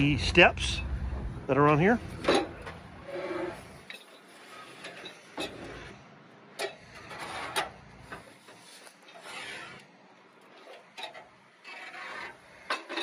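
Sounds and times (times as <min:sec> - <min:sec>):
metal steps scraping: 0:00.0 - 0:09.8
metal knocks and clunks: 0:02.1 - 0:02.9.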